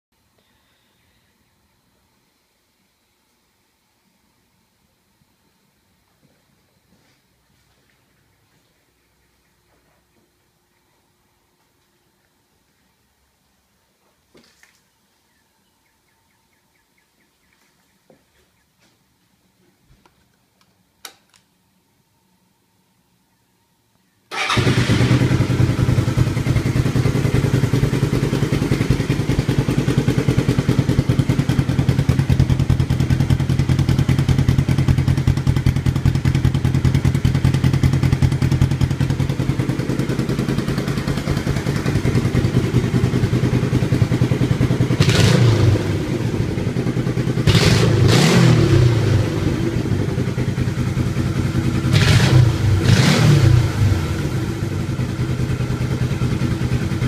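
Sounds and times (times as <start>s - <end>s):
engine revving: 24.3s - 34.8s, 37.0s - 56.8s
motorcycle engine idling: 24.3s - 57.0s.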